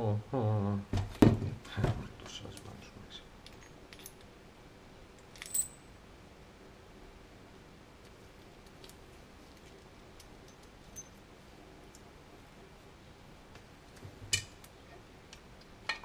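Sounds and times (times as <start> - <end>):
metal gears clinking and knocking: 5.3 - 5.8.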